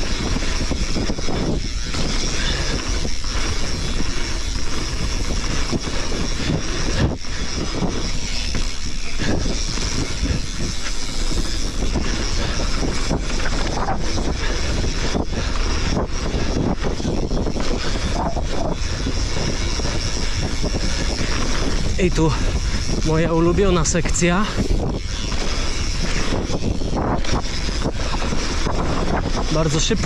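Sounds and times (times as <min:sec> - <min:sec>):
bike knocking and rattling: 0:00.0 - 0:30.0
tyres on loose dirt: 0:00.0 - 0:30.0
wind rushing over microphone: 0:00.0 - 0:30.0.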